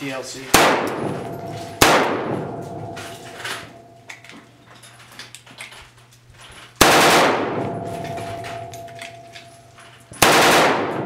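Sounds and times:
rifle shot with echo: 0.5 - 3.9, 6.8 - 8.8, 10.2 - 11.0.

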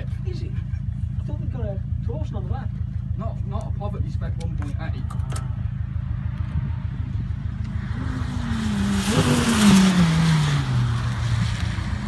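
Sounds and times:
car engine passing by: 5.1 - 12.0.

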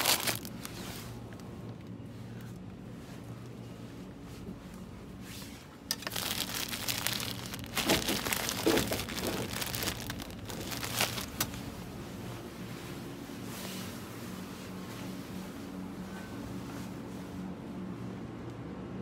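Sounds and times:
crinkling and rustling: 0.0 - 11.8
steady low hum: 0.0 - 19.0.

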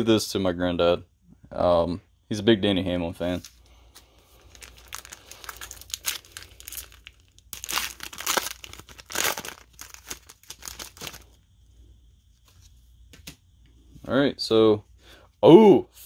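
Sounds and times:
wrapper crinkling and tearing: 4.4 - 11.3.

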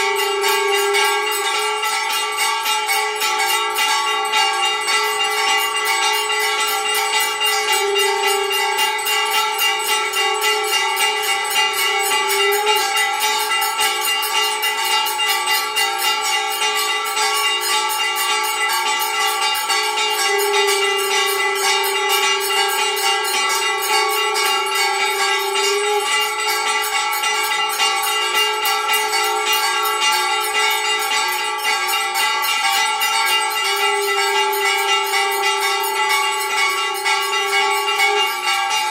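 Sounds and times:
bells ringing rapidly: 0.0 - 38.9
held low tone: 19.8 - 26.4.

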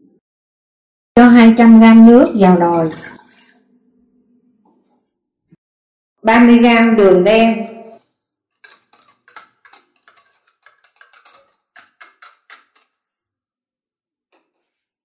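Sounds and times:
whisk scraping plastic bowl: 8.0 - 13.3.

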